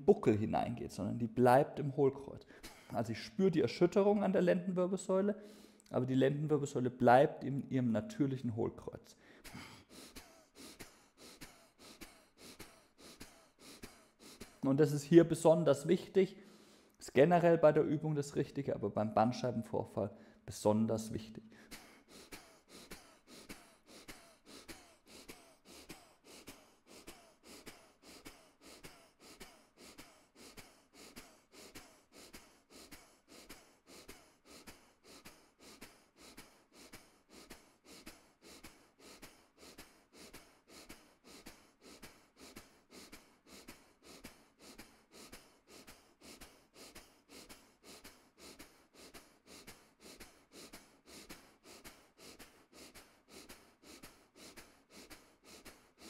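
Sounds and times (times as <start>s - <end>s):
rapid forceful exhalations: 9.2s - 14.7s, 21.5s - 56.0s.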